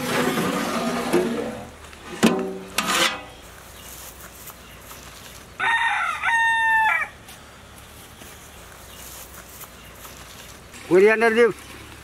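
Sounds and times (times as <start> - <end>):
rooster crowing: 5.6 - 7.2.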